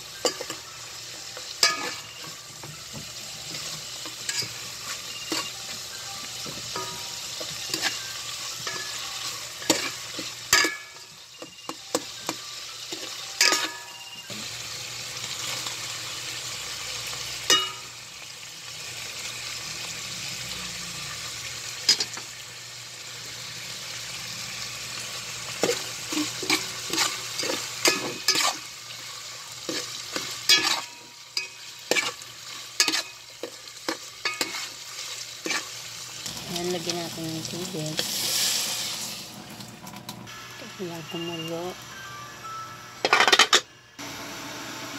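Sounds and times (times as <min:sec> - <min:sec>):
food sizzling in oil: 0:00.0 - 0:44.9
spatula scraping a metal pot: 0:25.6 - 0:28.7, 0:29.6 - 0:35.8.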